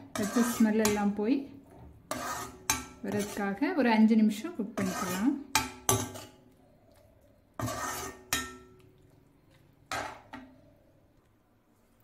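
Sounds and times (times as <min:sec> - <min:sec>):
metal ladle scraping a pan: 0:00.0 - 0:03.8, 0:04.4 - 0:06.6, 0:07.5 - 0:08.8, 0:09.9 - 0:10.5.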